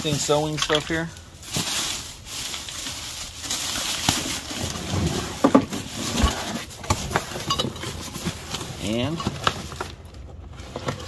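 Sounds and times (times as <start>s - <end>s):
rustling: 0.0s - 11.0s
objects knocking and clunking in boxes: 3.4s - 11.0s.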